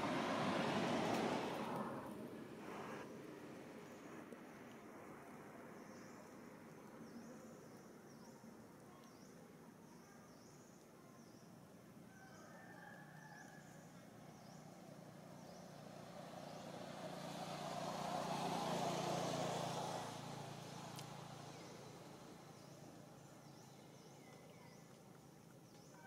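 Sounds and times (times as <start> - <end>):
vehicle passing by: 0.0 - 3.2, 13.6 - 24.1.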